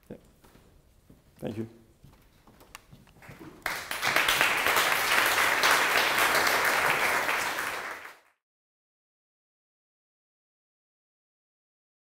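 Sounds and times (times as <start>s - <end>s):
audience applauding: 3.2s - 8.4s.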